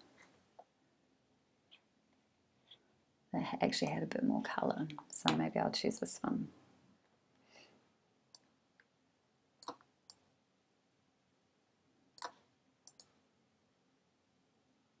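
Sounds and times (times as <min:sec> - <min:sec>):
computer mouse clicks: 0:09.6 - 0:10.2, 0:12.2 - 0:13.2.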